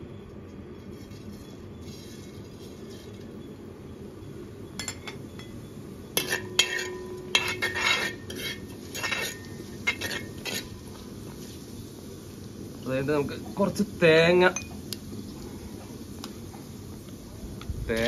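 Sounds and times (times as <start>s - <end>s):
spoon scraping metal pan: 6.1s - 11.1s.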